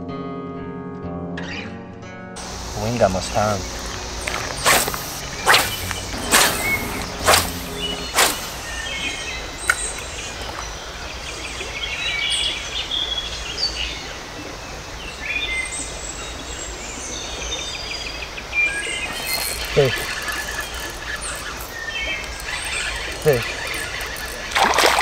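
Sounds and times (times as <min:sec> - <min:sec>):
birds chirping and calling: 0:02.4 - 0:13.8, 0:16.5 - 0:25.0
outdoor background noise: 0:02.4 - 0:25.0.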